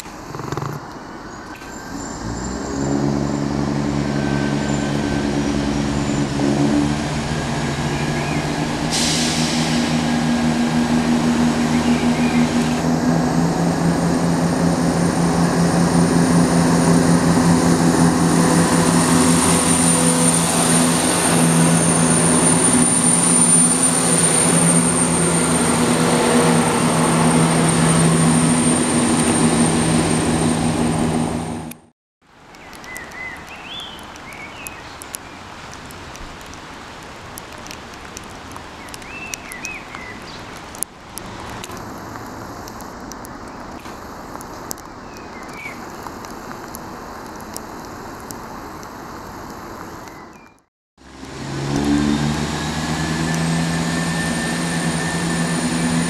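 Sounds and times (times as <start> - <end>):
diesel train engine drone: 1.9 - 31.9, 51.0 - 56.0.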